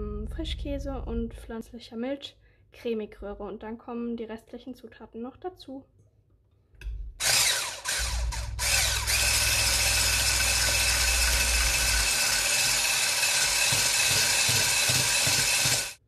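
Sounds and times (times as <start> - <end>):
immersion blender motor whine: 7.2 - 16.0.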